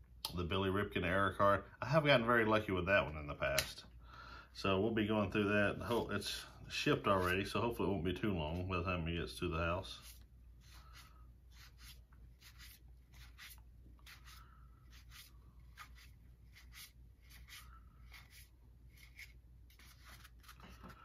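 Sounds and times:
low room hum: 0:00.0 - 0:21.0
cards swishing against each other: 0:10.0 - 0:21.0.

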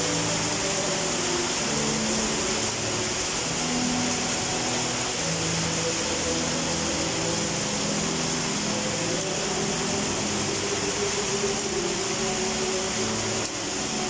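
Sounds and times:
heavy rain on rooftops: 0:00.0 - 0:14.0.

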